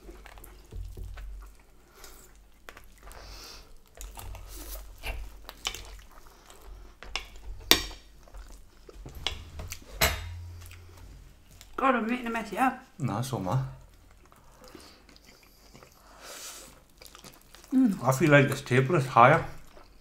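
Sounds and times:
close-up chewing: 0.0 - 9.2, 13.8 - 18.7, 19.5 - 20.0
cutlery scraping on plates: 9.1 - 10.6.

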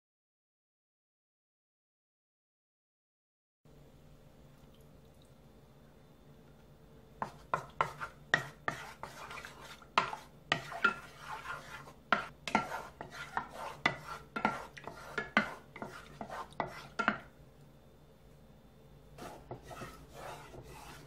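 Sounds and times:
wooden spatula scraping a saucepan: 7.2 - 17.3, 19.2 - 21.0.

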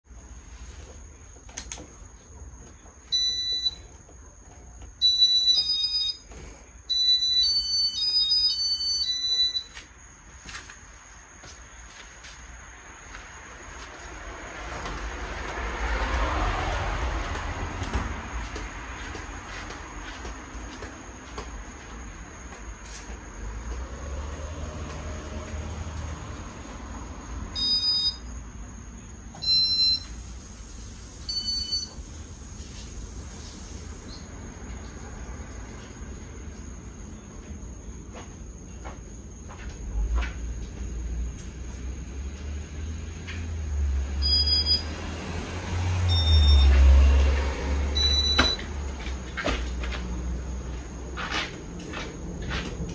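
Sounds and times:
short electronic beeps: 3.1 - 3.8, 5.0 - 6.2, 6.9 - 9.7, 27.6 - 28.2, 29.4 - 30.1, 31.3 - 31.9, 44.2 - 44.9
electronic beeping tones: 3.2 - 3.8, 5.0 - 6.2.

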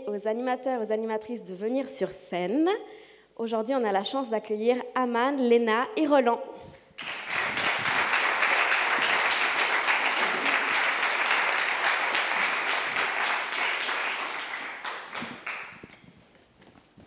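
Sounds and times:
audience applauding: 7.0 - 15.9.

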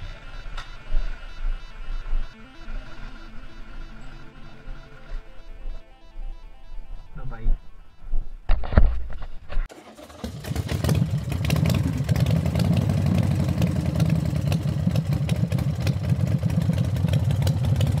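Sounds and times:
motorcycle engine running: 10.2 - 18.0.

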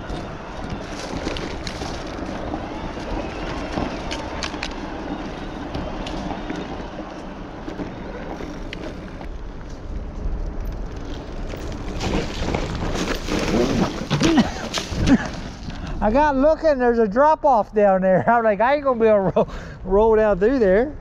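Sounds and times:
bike clicking and rattling: 0.0 - 16.1
bike tyre and wind noise: 0.0 - 17.7, 18.7 - 21.0.

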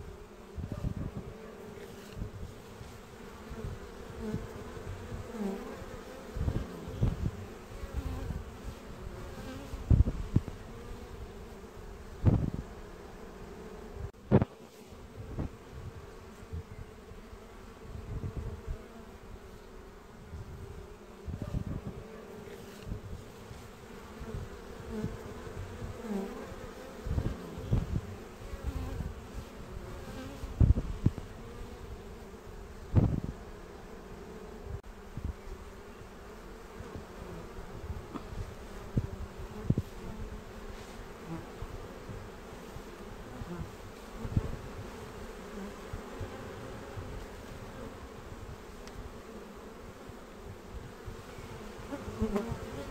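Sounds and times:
bees buzzing: 0.0 - 52.9.

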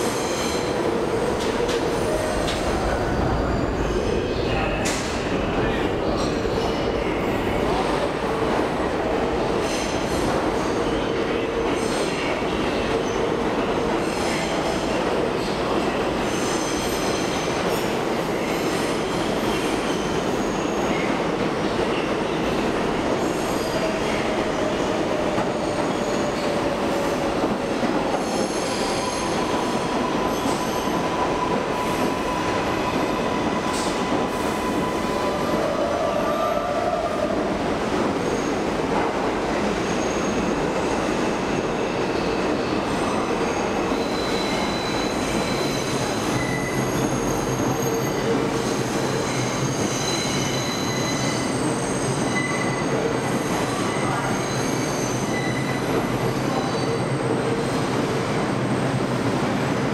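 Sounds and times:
train wheels rumbling on rail: 0.0 - 59.9
steel wheels squealing on track: 42.2 - 57.2.

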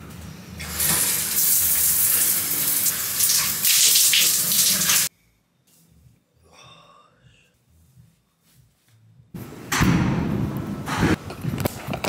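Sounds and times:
shower water spraying: 0.6 - 5.1.

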